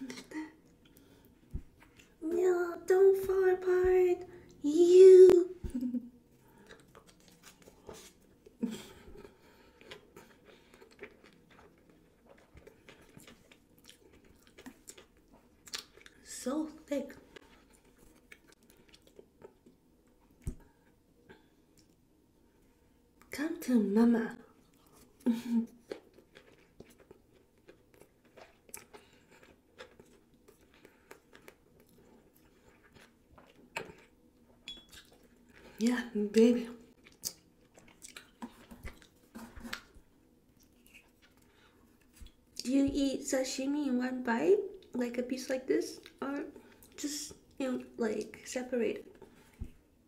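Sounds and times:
mouth chewing food: 6.4s - 16.3s, 17.2s - 22.0s, 24.5s - 42.7s
wet mouth chewing clicks: 10.7s - 16.2s, 37.0s - 39.9s.

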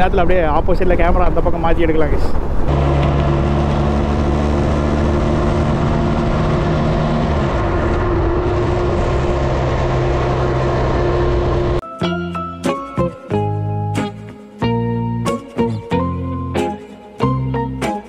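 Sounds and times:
wind noise: 0.0s - 11.8s
motorcycle engine running: 2.7s - 11.8s.

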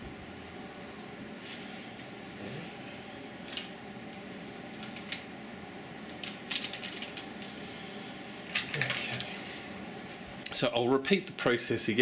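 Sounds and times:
steady low hum: 0.0s - 12.0s
hard objects clicking and clacking: 8.6s - 9.3s.

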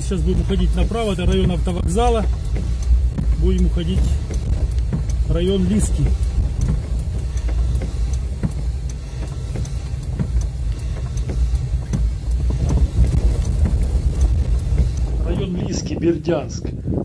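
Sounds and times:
car engine and tyres rumbling: 0.0s - 17.0s
faint light ticks: 0.1s - 15.5s.

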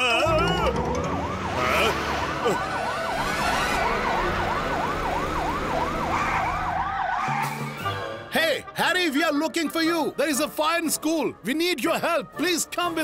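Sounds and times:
fire engine siren yelping: 0.0s - 8.1s.

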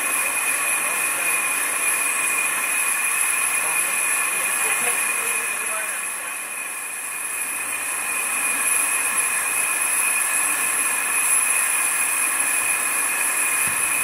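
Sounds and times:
steam locomotive hissing: 0.0s - 14.0s.

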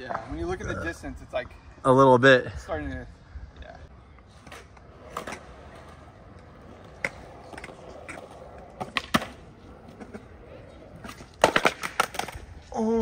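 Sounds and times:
skateboard wheels rolling on concrete: 0.0s - 13.0s
skateboard clicks and knocks: 4.2s - 13.0s.

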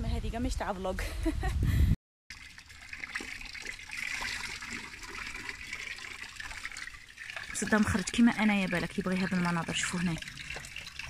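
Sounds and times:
running water trickling: 2.3s - 11.0s.

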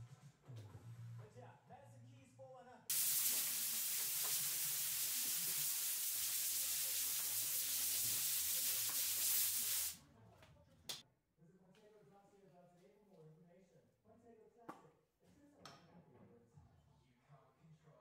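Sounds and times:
air blowgun hissing: 2.9s - 10.0s.

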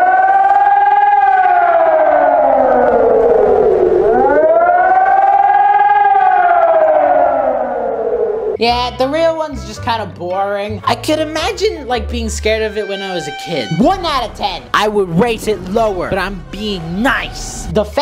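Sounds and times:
warning siren wailing: 0.0s - 8.6s, 12.7s - 17.7s.

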